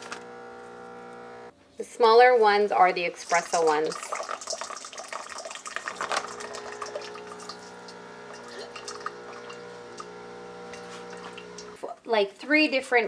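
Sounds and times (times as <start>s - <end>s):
coffee machine pump humming: 0.0s - 1.5s, 3.3s - 11.8s.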